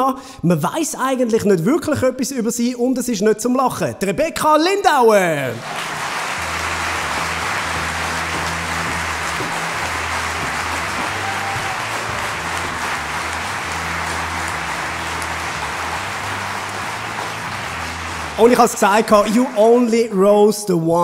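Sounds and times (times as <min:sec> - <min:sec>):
audience applauding: 0:05.5 - 0:20.3
walk-on music with deep bass line: 0:06.4 - 0:19.2.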